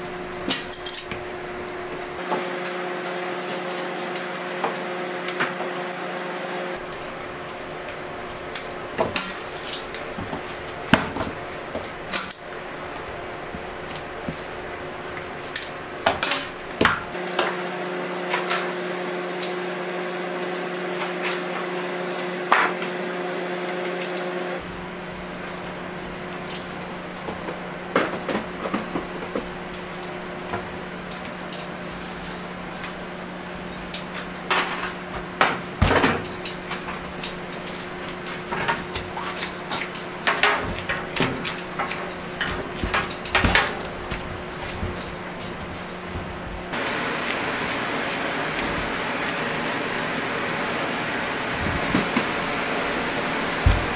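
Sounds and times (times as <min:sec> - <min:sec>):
steady hum: 0:00.0 - 0:02.2, 0:24.5 - 0:53.9.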